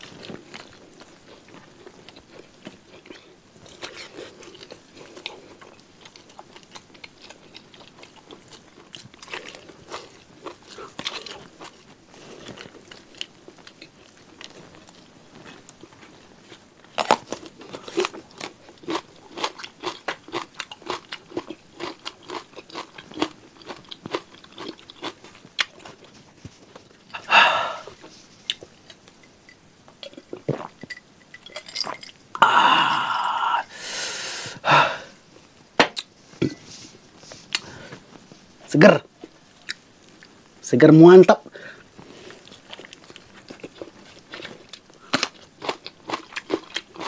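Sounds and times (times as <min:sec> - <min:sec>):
chewing with wet clicks and smacks: 0:00.1 - 0:16.1, 0:17.0 - 0:26.1, 0:42.5 - 0:47.0
breathy rush of air: 0:27.2 - 0:28.0, 0:32.4 - 0:35.2.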